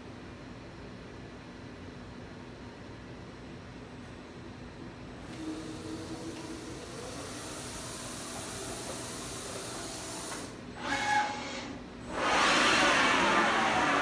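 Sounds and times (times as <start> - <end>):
machine whining tone: 5.4 - 14.0
router machine hissing: 6.8 - 14.0
loud rushing machine noise: 12.0 - 14.0.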